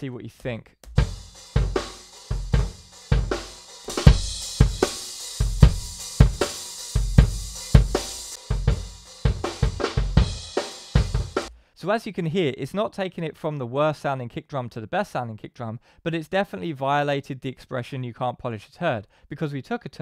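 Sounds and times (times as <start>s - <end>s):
kick drum thumps: 0.8s - 3.4s, 4.0s - 11.5s
drum kit playing a steady beat: 0.8s - 11.6s.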